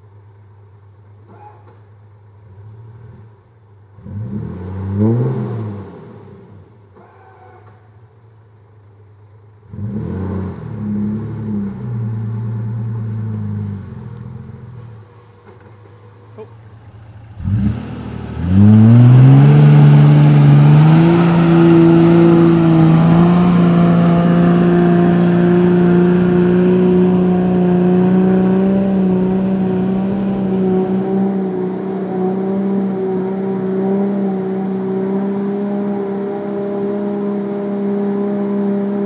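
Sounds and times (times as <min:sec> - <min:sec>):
engine working under load: 0:09.2 - 0:39.0.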